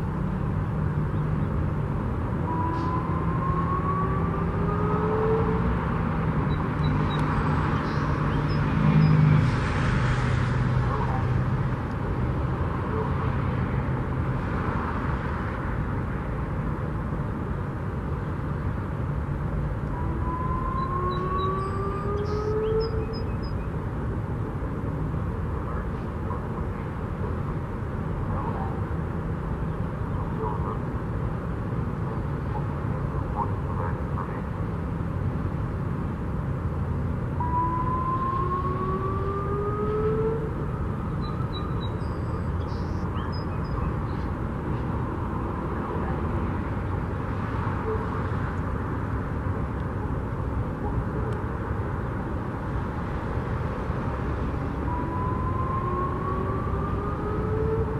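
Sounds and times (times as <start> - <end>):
low engine hum: 0.0 - 57.9
road traffic: 0.0 - 57.9
warning siren whoop tone: 2.3 - 9.5, 19.8 - 23.8, 37.2 - 44.1, 47.8 - 48.3, 54.3 - 57.9.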